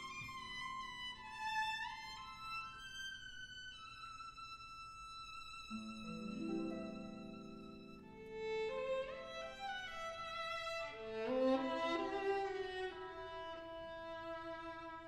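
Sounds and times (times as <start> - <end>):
slow violin melody: 0.0 - 15.0.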